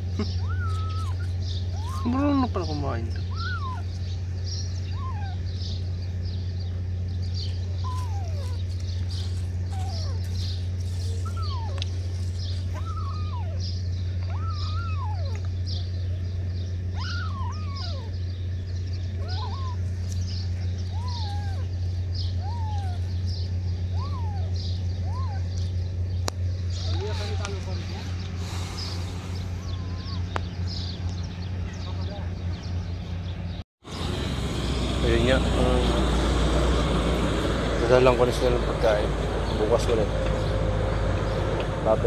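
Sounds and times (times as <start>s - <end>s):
kittens mewing: 0.0s - 6.0s, 7.6s - 15.9s, 16.8s - 30.9s
steady low hum: 0.0s - 42.0s.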